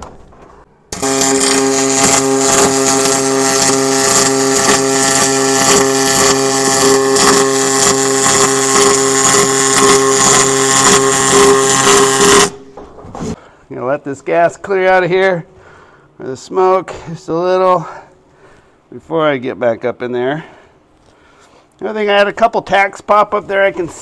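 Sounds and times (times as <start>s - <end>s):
welder arc buzzing and crackling: 0.9s - 12.7s.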